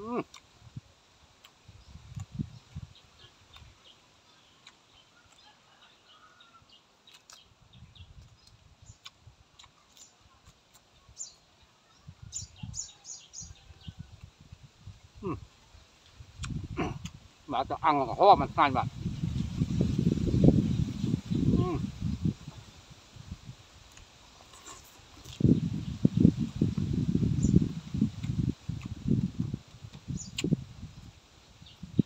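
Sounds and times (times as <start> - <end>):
person chewing: 4.5 - 5.6, 7.0 - 7.5, 8.2 - 10.9, 16.4 - 17.2, 23.8 - 25.5, 28.1 - 29.0.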